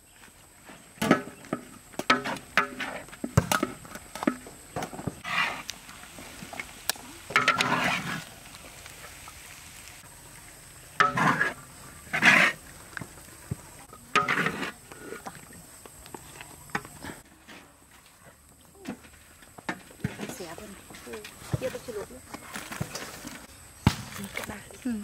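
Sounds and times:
spatula scraping wok: 5.2s - 5.7s, 7.3s - 8.4s, 10.9s - 12.6s, 14.1s - 15.2s.

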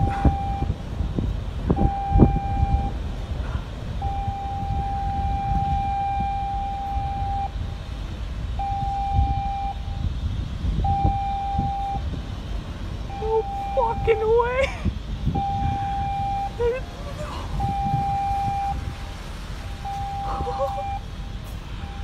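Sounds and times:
ship's horn blasts: 0.0s - 7.6s, 8.6s - 21.0s
low rumble: 0.0s - 22.0s.

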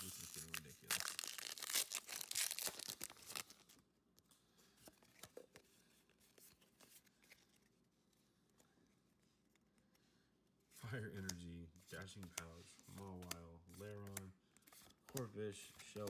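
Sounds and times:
foil wrapper tearing: 0.0s - 3.5s.

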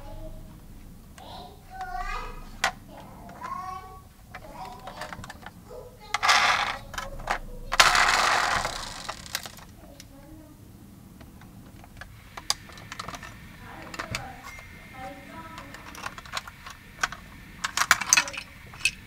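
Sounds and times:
toy truck parts clicking and rattling: 4.3s - 10.0s, 11.7s - 14.7s, 15.4s - 19.0s
hissing noises: 11.2s - 19.0s.

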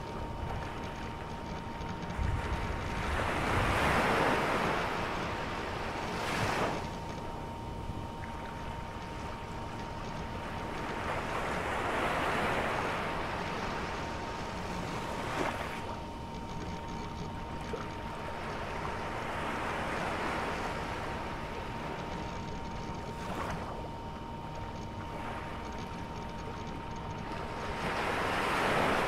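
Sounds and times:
sharp ticks: 25.6s - 27.3s.

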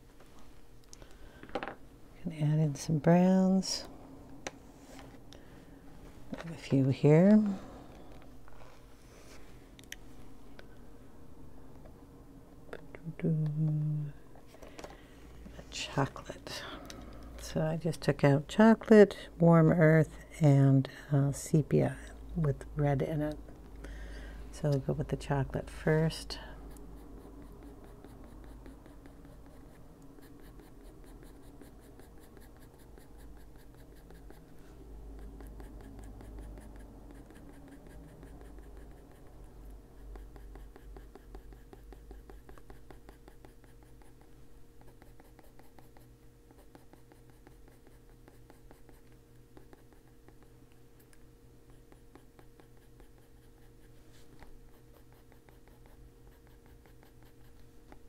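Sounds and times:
pencil shading on paper: 25.7s - 50.6s, 51.6s - 58.0s.

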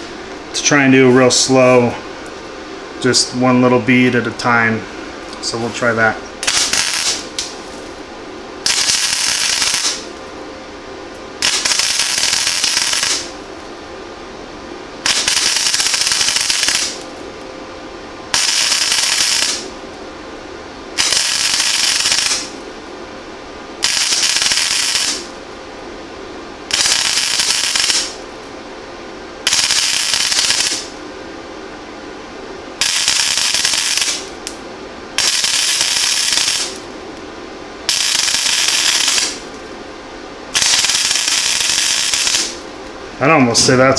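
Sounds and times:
welder hum: 0.0s - 43.9s
welding arc bursts: 5.6s - 7.8s, 8.6s - 10.1s, 11.4s - 13.3s, 15.0s - 17.1s, 18.3s - 19.7s, 21.0s - 22.6s, 23.8s - 25.3s, 26.7s - 28.2s, 29.4s - 31.0s, 32.8s - 34.6s, 35.2s - 36.9s, 37.9s - 39.6s, 40.5s - 42.6s.

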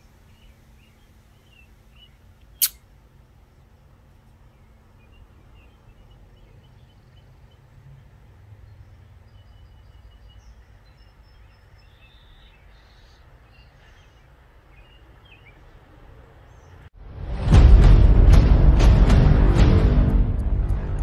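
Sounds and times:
faint bird chirps: 0.0s - 16.9s
steady low rumble: 16.9s - 21.0s.

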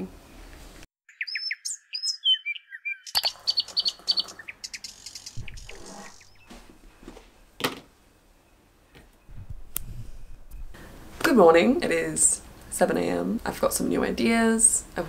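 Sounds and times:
small birds chirping: 1.1s - 7.6s.

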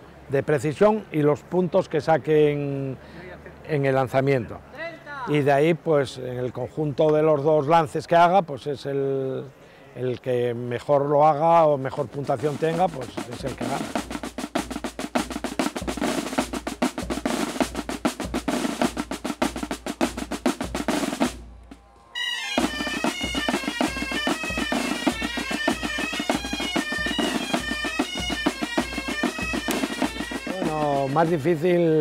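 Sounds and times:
snare drum rolls: 12.1s - 21.9s, 22.5s - 31.6s
bass drum beat: 12.2s - 21.8s, 22.6s - 31.6s
bagpipes playing a melody: 22.2s - 31.4s.

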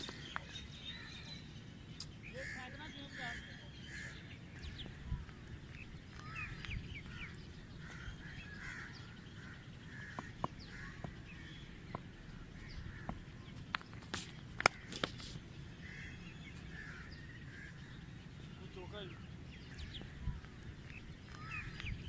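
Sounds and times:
birds calling: 0.0s - 22.0s.

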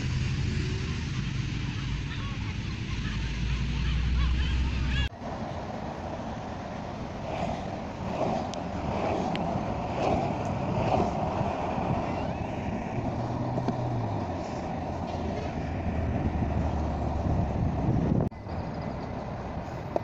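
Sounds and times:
skateboard wheels rolling on asphalt: 5.1s - 20.0s.

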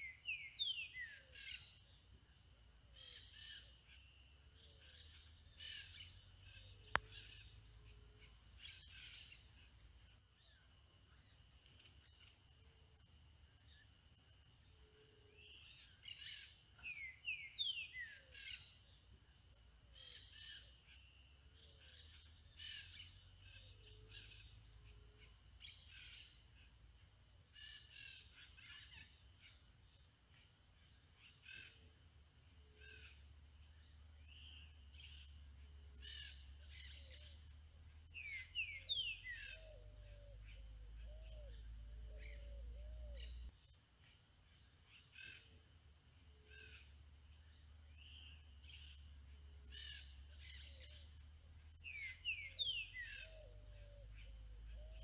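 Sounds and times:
bird singing whistled notes: 0.0s - 1.8s, 15.5s - 18.6s, 38.1s - 43.5s, 51.8s - 55.0s.

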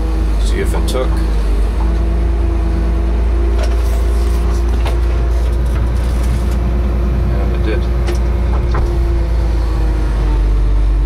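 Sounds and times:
excavator engine rumbling: 0.0s - 11.0s
hydraulic whine: 0.0s - 11.0s.

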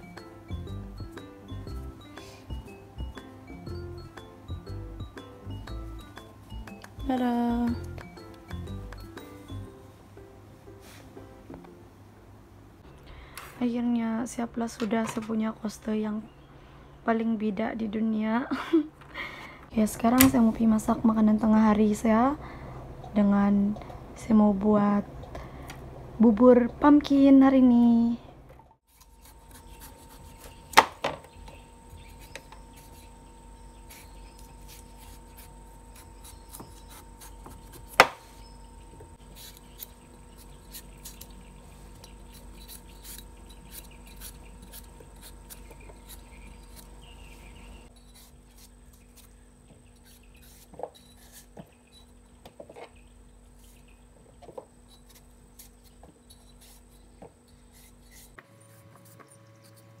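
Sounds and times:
faint steady hum: 5.6s - 60.0s
knife scraping vegetable skin: 28.9s - 30.9s, 32.0s - 33.2s, 33.8s - 38.5s, 39.2s - 52.2s, 54.8s - 60.0s.

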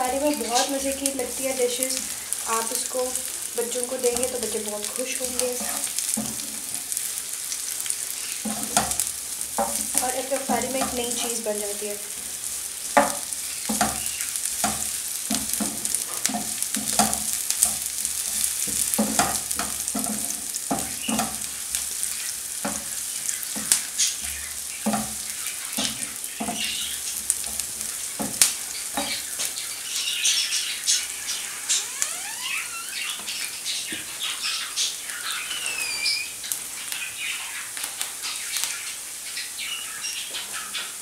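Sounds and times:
onions sizzling in oil: 0.0s - 41.0s
wooden spatula knocking on pan: 5.3s - 7.0s, 8.4s - 11.4s, 12.9s - 29.3s.

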